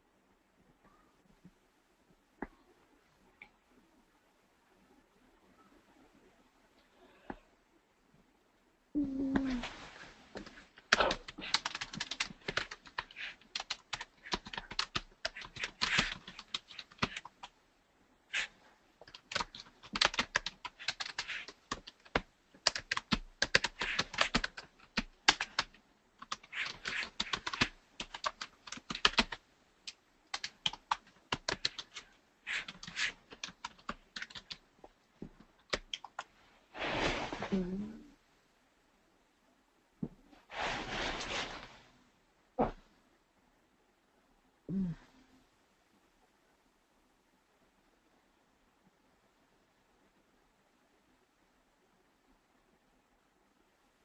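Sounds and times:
typing on computer keyboard: 10.9s - 17.5s, 18.3s - 34.6s, 35.6s - 36.3s.

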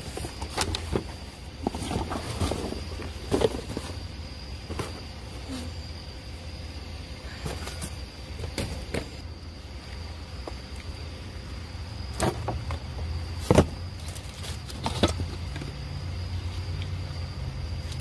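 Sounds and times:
cardboard and bottles rustling: 0.0s - 5.6s, 7.3s - 9.2s, 12.1s - 15.8s
steady low hum: 0.0s - 18.0s.

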